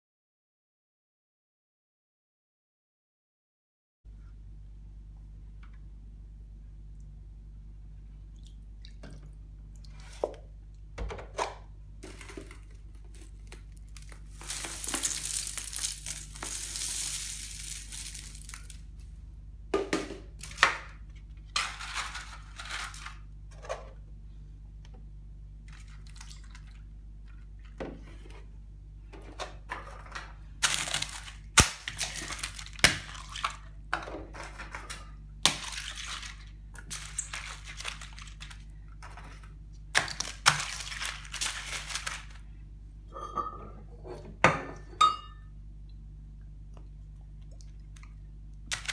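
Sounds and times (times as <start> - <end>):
food crunching and knocking: 10.0 - 18.9
packaging crinkling and tearing: 12.0 - 18.8, 30.6 - 33.5, 35.6 - 38.7, 40.0 - 42.4, 48.7 - 48.9
cereal pouring onto countertop: 13.2 - 18.8.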